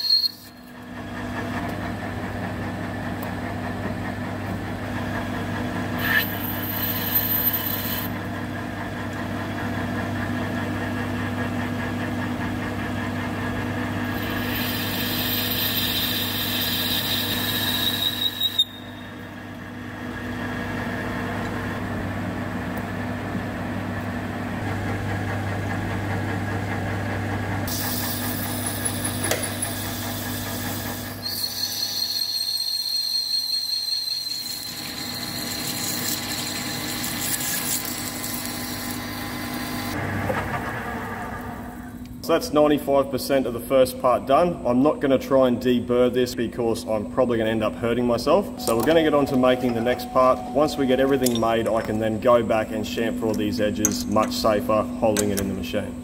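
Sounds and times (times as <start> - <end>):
metal lathe gear hum: 5.9 - 8.2, 14.0 - 21.8, 27.7 - 40.0
high cutting whine: 48.1 - 55.9.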